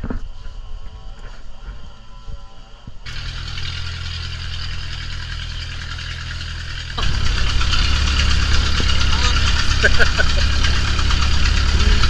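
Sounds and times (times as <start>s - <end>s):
wind: 0.0s - 12.0s
boat engine running: 3.0s - 12.0s
water noise: 3.1s - 12.0s.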